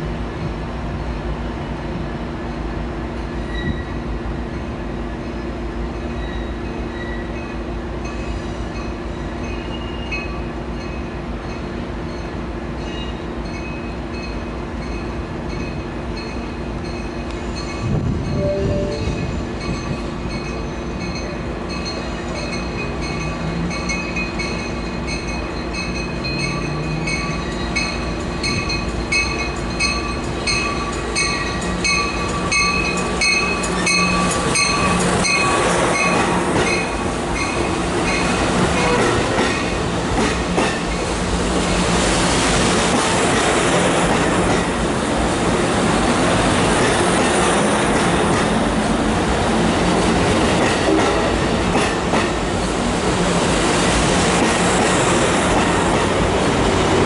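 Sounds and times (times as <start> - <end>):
train cars rolling past: 0.0 - 57.0
wheels squealing on rails: 3.2 - 4.4, 5.1 - 44.7
train bell ringing: 6.3 - 39.0.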